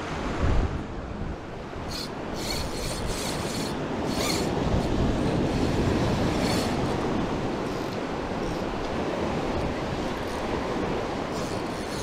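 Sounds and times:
surf washing against rocks: 1.6 - 12.0
fishing reel winding: 1.9 - 8.9, 9.6 - 10.6, 11.3 - 12.0.

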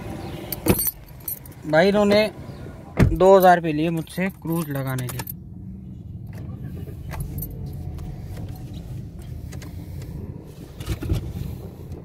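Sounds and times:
car engine idling: 0.0 - 12.0
light clicks from controls: 3.2 - 5.4.

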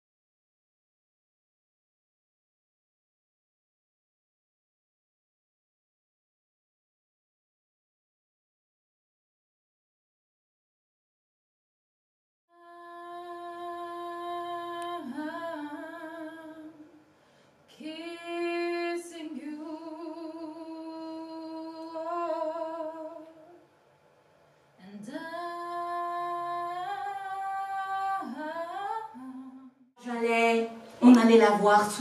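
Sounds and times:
woman singing long notes: 12.5 - 16.9.

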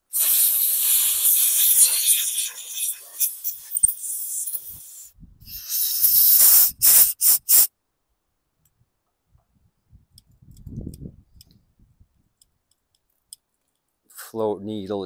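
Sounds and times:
compressed air blow gun blasting: 0.0 - 7.7.

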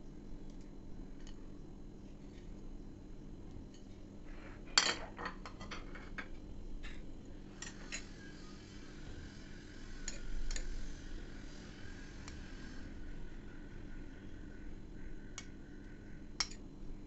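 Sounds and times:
low steady hum: 0.0 - 17.0
utensils clinking against dishes: 7.6 - 8.3, 10.0 - 10.7.

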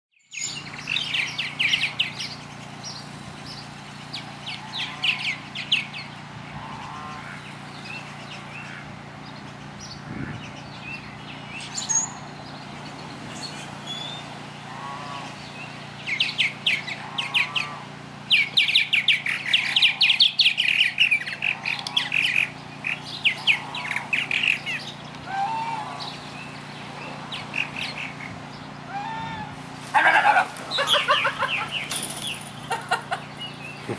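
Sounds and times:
birds chirping rapidly: 0.2 - 33.9
goose honking: 4.3 - 5.4, 6.5 - 7.5, 8.5 - 8.9, 14.6 - 15.4, 16.8 - 18.0, 21.1 - 26.2, 28.9 - 31.7.

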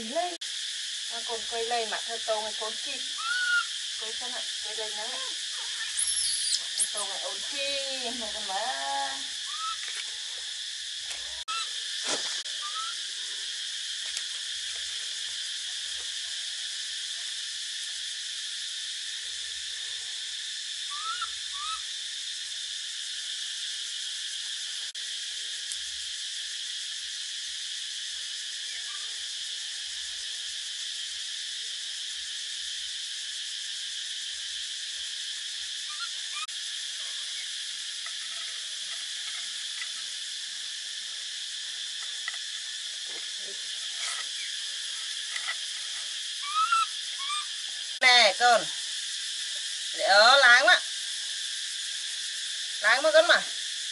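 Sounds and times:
insect chorus buzzing: 0.0 - 53.9
short rising chirps: 5.8 - 7.0.

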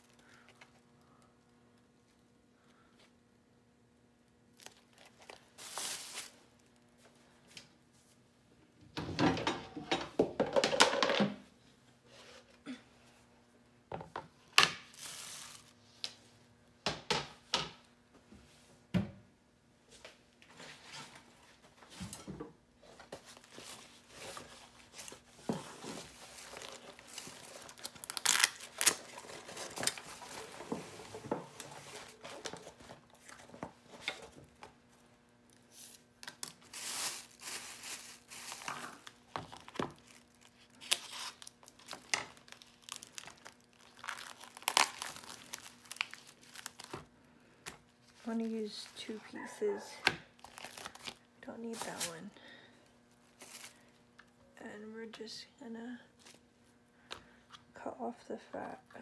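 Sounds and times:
plastic bag crinkling: 4.6 - 6.9, 14.9 - 15.8, 26.0 - 30.6, 35.8 - 47.1, 50.4 - 52.2, 53.2 - 54.0.

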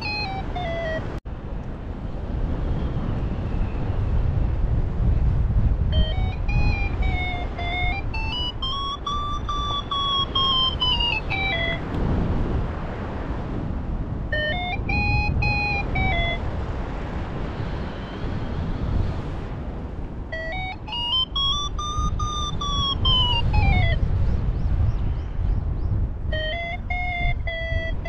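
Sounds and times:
variometer beeping: 0.0 - 1.2, 5.9 - 11.9, 14.3 - 16.4, 20.3 - 24.0, 26.3 - 28.0
wind on microphone: 0.0 - 28.0.

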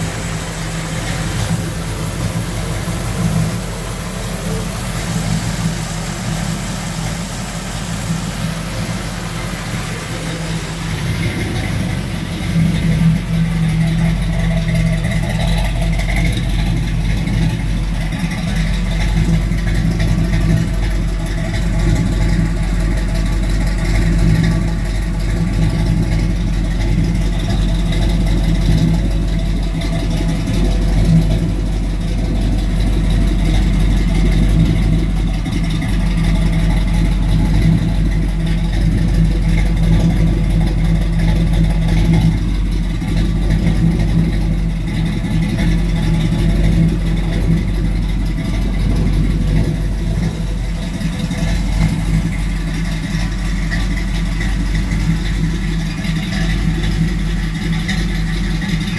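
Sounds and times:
car engine idling: 0.0 - 58.9.

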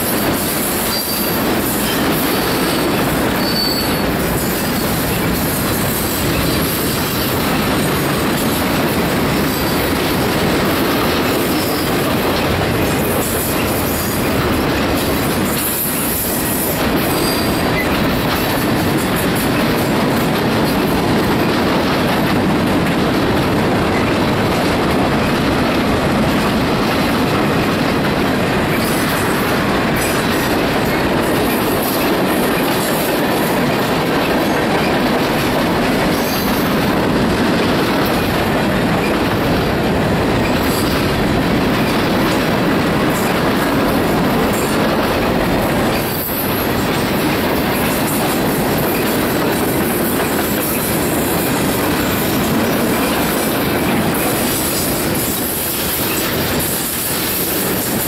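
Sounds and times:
train wheels rumbling on rails: 0.0 - 58.0
high wheel squeals: 0.8 - 5.0, 17.2 - 17.9.

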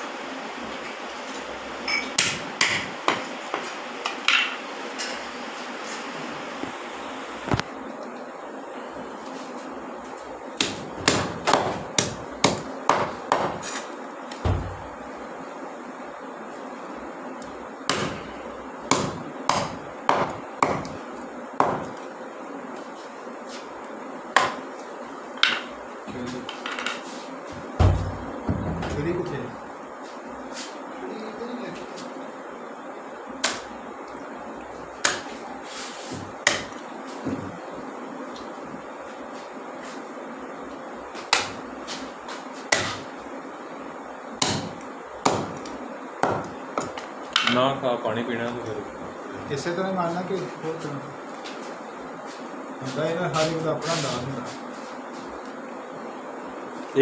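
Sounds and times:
cleaver chopping fish: 42.7 - 43.0.

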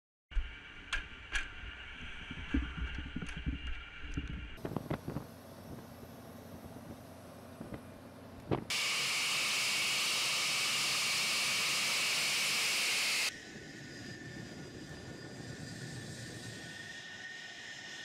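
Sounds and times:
jet engine whine with high tones: 0.4 - 18.0
jet engines hissing roar: 4.6 - 18.0.

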